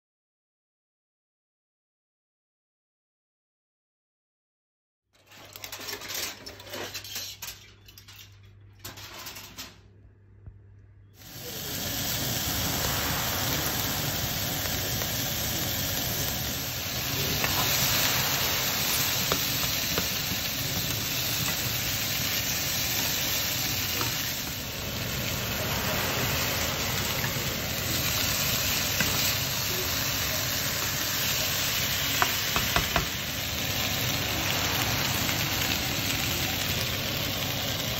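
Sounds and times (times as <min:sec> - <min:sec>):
vegetables sizzling in oil: 0:11.2 - 0:37.9.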